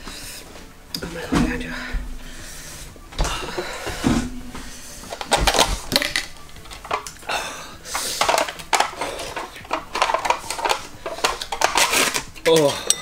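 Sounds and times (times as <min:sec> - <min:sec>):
seal peeled and crumpled: 0:07.9 - 0:12.6.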